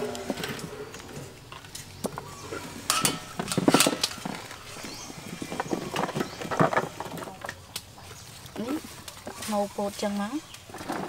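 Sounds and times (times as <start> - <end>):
vegetables clattering on metal tray: 1.6 - 7.6.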